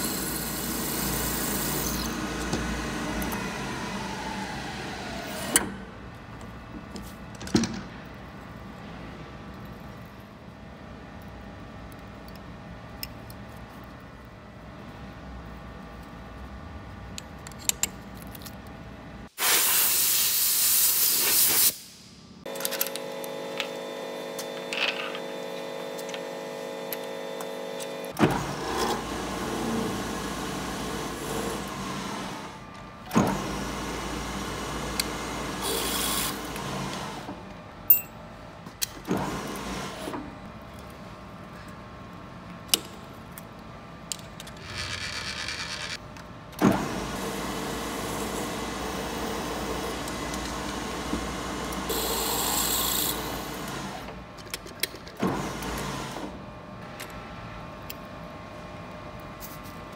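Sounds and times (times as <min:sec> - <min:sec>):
loud hiss: 0:19.4 - 0:22.2.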